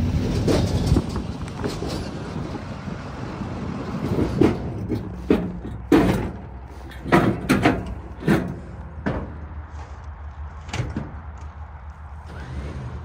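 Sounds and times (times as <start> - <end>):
metal ramps clanking: 0.0 - 2.6, 4.0 - 9.5.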